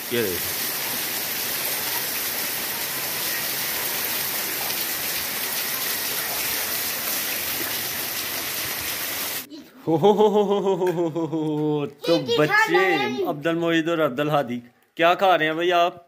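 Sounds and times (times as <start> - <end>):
heavy rain on concrete: 0.0 - 9.5.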